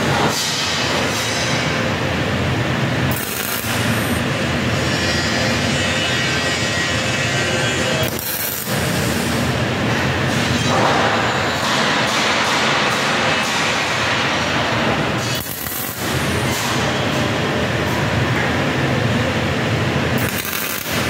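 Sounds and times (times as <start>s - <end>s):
workshop machinery rumble: 0.0s - 21.0s
welding arc hissing: 3.1s - 4.4s, 7.2s - 9.6s, 15.4s - 16.6s, 20.2s - 21.0s.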